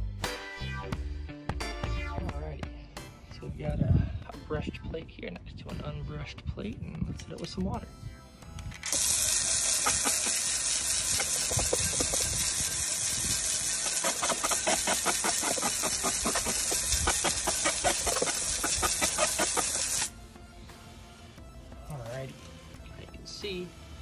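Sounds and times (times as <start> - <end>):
hose nozzle hissing: 8.8 - 20.1
water spattering on metal and wood: 8.9 - 20.1.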